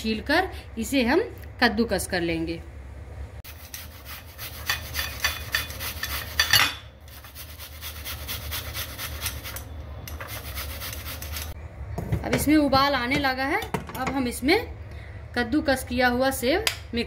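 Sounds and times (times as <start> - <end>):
apple rasping on a metal grater: 3.5 - 6.5, 7.1 - 11.6.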